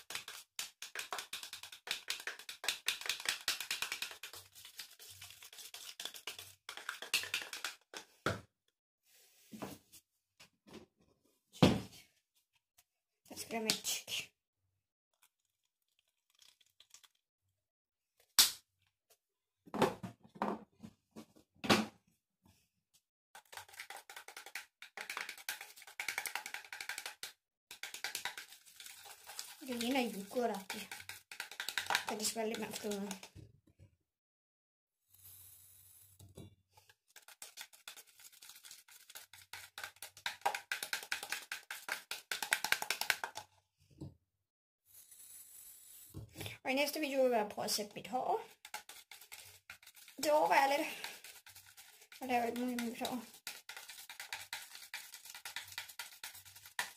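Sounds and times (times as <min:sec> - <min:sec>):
stirrer scraping plastic cup: 0:00.0 - 0:07.8, 0:23.4 - 0:33.3, 0:36.8 - 0:43.4, 0:48.5 - 0:56.9.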